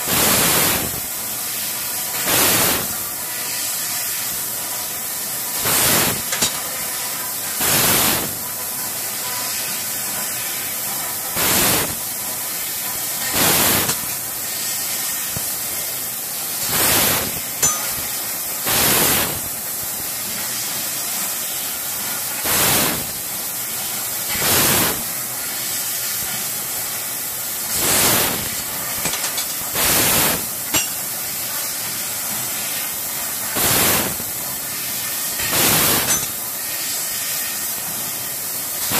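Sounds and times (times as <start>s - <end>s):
laser cutter steady hiss: 0.0s - 38.9s
rush of gas: 16.6s - 17.8s, 18.6s - 19.5s, 22.4s - 23.2s, 24.3s - 25.1s, 27.7s - 28.5s, 35.4s - 36.3s.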